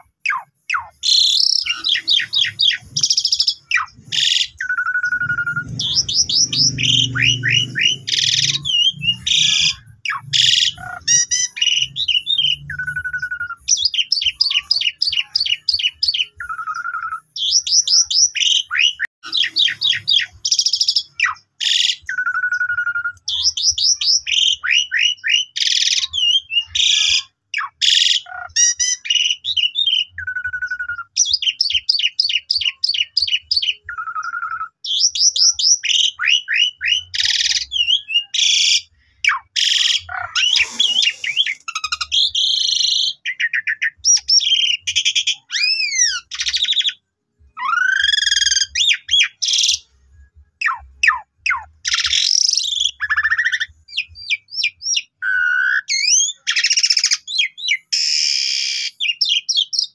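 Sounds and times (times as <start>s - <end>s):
starling singing: 0.0s - 50.0s, 50.6s - 59.9s.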